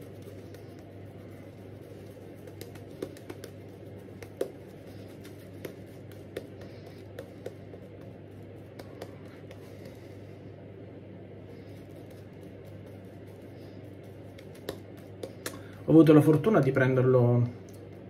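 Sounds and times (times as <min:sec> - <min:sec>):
shaving brush on lathered skin: 0:00.0 - 0:10.1, 0:11.6 - 0:15.4.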